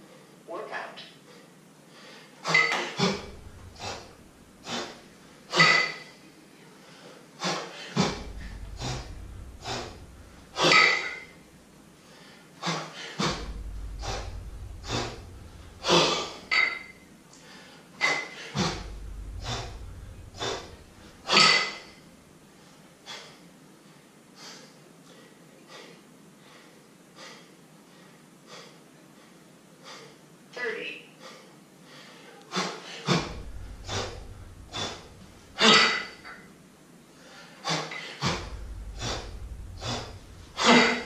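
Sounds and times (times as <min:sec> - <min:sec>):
person breathing hard: 0:01.3 - 0:02.4, 0:03.0 - 0:05.6, 0:06.8 - 0:16.5, 0:17.3 - 0:30.2, 0:31.2 - 0:36.3, 0:37.1 - 0:41.0
low thud: 0:03.0 - 0:04.6, 0:08.0 - 0:11.7, 0:13.2 - 0:17.1, 0:18.6 - 0:22.4, 0:33.2 - 0:36.2, 0:38.2 - 0:41.0.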